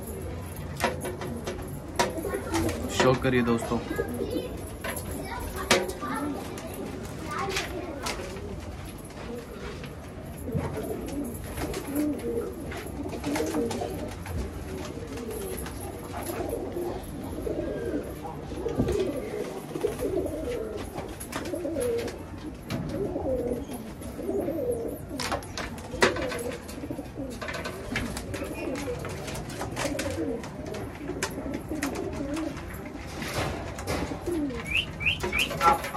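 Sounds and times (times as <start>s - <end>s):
pigeons cooing: 0.0s - 35.9s.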